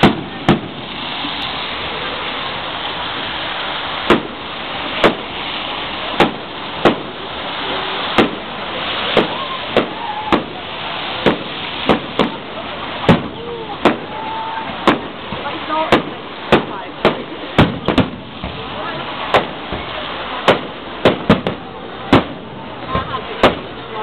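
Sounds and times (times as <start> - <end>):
firework shells bursting: 0.0 - 1.0, 4.0 - 18.7, 19.3 - 22.5
steady hiss: 0.0 - 24.0.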